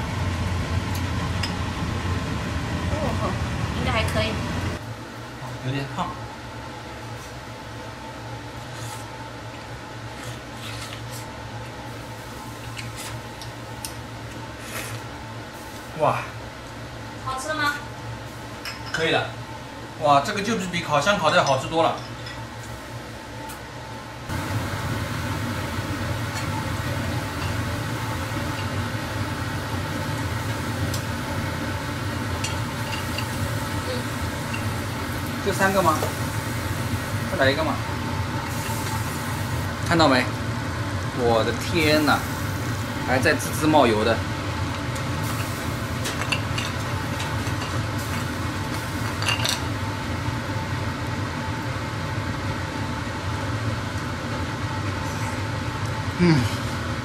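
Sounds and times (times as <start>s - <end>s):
oysters sizzling: 24.3s - 52.8s.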